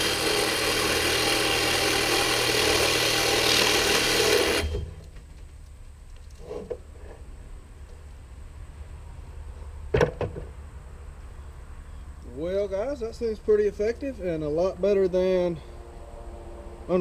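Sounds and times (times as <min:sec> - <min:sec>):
angle grinder cutting metal: 0:00.0 - 0:05.0.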